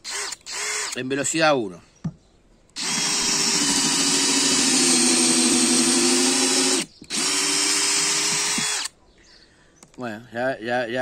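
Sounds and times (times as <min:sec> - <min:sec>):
cordless drill into hard wood: 0:00.0 - 0:01.0, 0:02.8 - 0:08.9.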